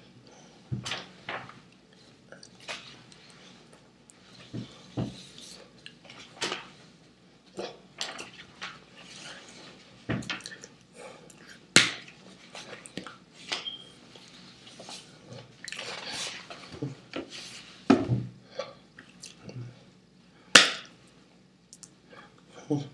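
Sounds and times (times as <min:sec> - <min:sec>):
hands slapping and clapping: 0:11.8 - 0:12.0, 0:20.6 - 0:20.9.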